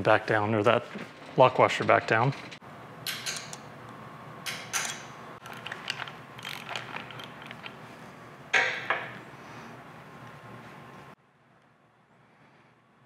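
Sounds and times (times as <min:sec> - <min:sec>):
ratchet wrench clicking: 0:04.8 - 0:07.6.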